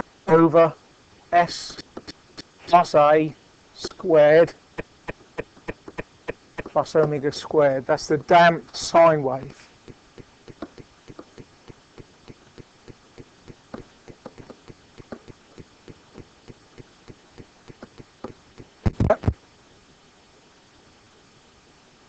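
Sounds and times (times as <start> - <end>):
stylus tapping on writing surface: 9.8 - 18.7.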